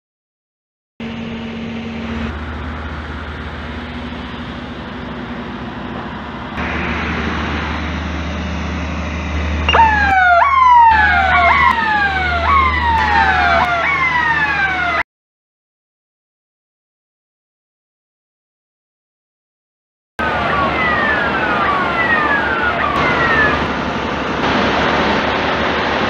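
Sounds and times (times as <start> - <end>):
alarm siren falling sweeps: 1.0 - 15.0, 20.2 - 26.0.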